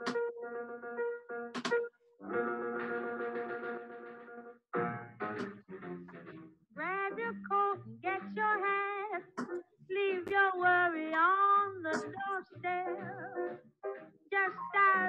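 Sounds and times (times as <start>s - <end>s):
instrumental accompaniment: 0.0s - 6.5s
woman singing: 6.8s - 13.2s, 14.3s - 15.0s.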